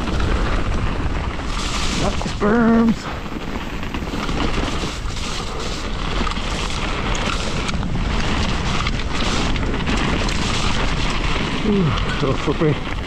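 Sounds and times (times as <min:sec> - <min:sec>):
bike clicks and rattles: 0:00.0 - 0:13.0
bike tyre rumble: 0:00.0 - 0:13.0.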